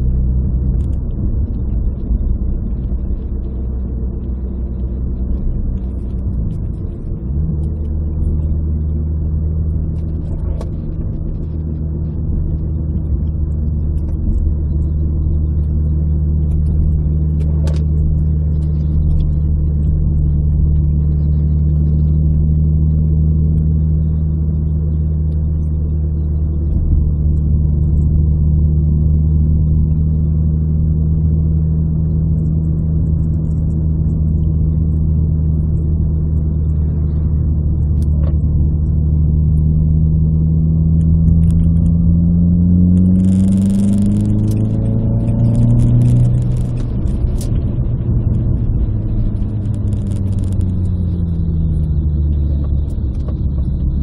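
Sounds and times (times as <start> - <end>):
car engine running: 0.0 - 54.0.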